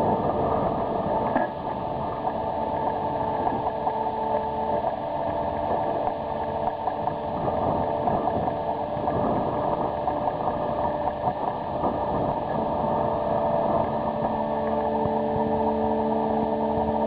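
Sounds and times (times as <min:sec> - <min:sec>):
crane machinery hum: 0:00.0 - 0:17.0.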